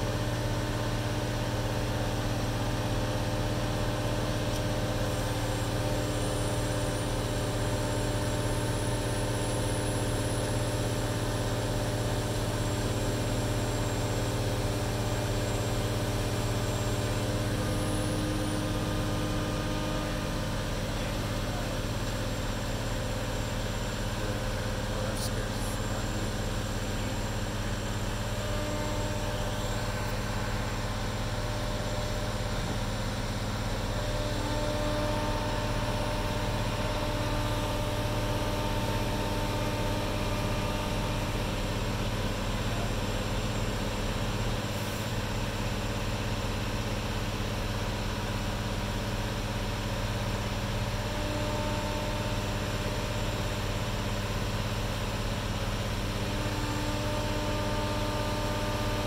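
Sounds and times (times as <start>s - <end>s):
crane engine humming: 3.6s - 43.8s.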